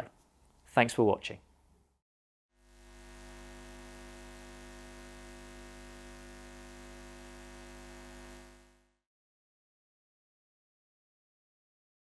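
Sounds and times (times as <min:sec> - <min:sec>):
electronic drone of held tones: 0:02.6 - 0:09.0
low hum: 0:02.6 - 0:09.0.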